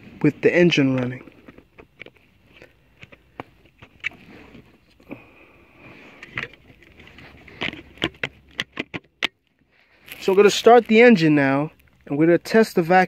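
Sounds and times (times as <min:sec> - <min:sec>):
hands handling plastic trim: 0:06.2 - 0:11.1.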